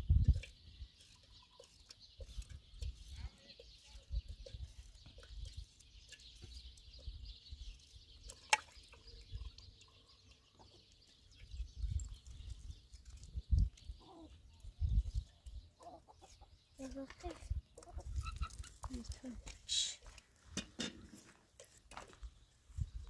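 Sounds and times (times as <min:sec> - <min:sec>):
wind rumbling on microphone: 0:00.0 - 0:00.5, 0:11.5 - 0:15.6, 0:17.4 - 0:19.2, 0:22.7 - 0:23.0.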